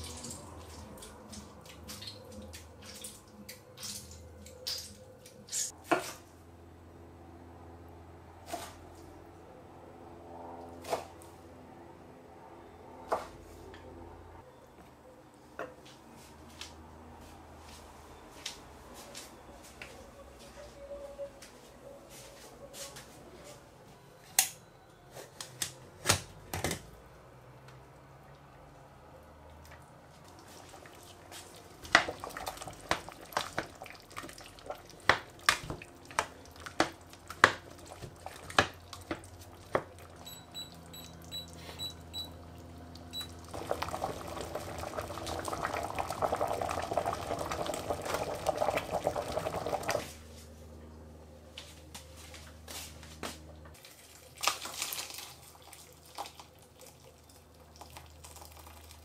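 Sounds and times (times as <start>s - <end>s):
liquid bubbling: 30.3s - 40.2s, 43.2s - 50.1s
short high beeps: 40.3s - 42.4s.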